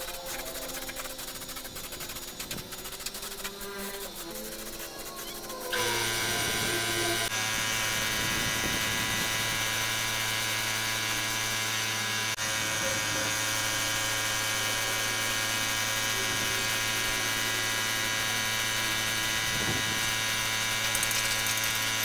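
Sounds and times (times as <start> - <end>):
spray gun hissing: 0.0 - 9.2
air compressor motor hum: 0.0 - 22.0.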